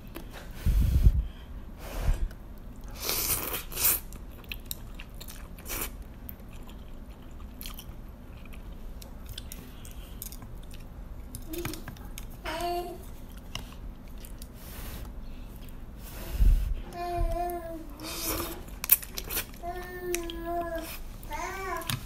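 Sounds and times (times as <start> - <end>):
person chewing: 2.8 - 12.4, 13.0 - 14.6, 15.6 - 15.9, 18.0 - 21.1.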